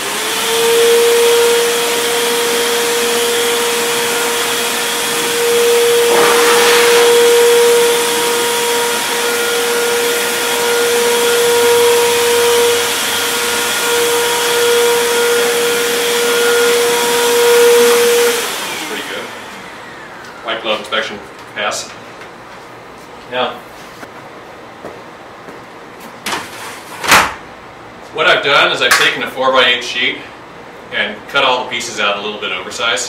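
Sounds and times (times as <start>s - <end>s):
vacuum-blower motor whine: 0.0s - 21.2s
rush of air: 6.0s - 8.8s.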